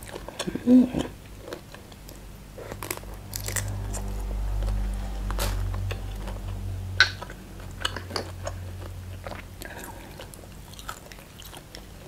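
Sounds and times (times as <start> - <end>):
chewing with crunches: 0.0 - 12.0
passing road traffic rumble: 2.5 - 11.3.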